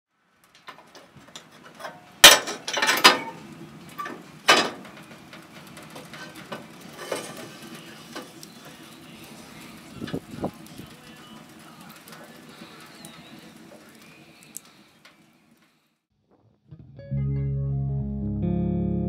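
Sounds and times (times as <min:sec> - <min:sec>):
wood fire crackling: 0:00.1 - 0:16.1
metal clanks of stove door: 0:00.6 - 0:07.6.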